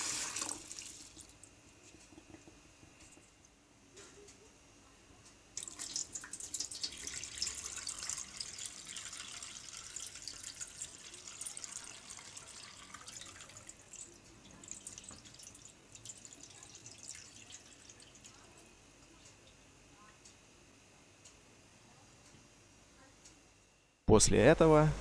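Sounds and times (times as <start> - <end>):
water pouring into a steel sink: 0.0 - 1.3, 5.6 - 18.5
water trickling: 5.6 - 18.5.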